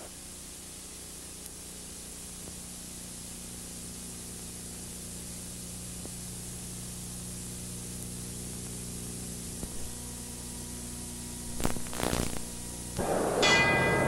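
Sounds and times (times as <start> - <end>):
tape hiss with low hum: 0.0 - 14.0
short crackle: 7.9 - 10.1, 11.3 - 13.7.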